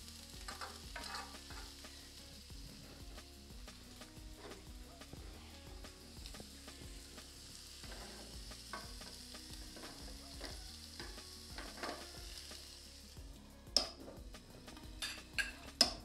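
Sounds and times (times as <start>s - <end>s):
meat sizzling in a pan: 0.0s - 16.0s
utensil scraping a pan: 0.4s - 1.9s, 7.7s - 12.4s
utensil knocking against pan: 8.7s - 9.1s.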